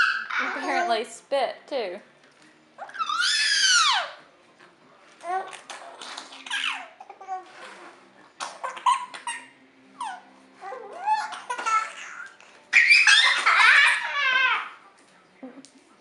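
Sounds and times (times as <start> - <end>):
baby and boy giggling: 11.0 - 14.7.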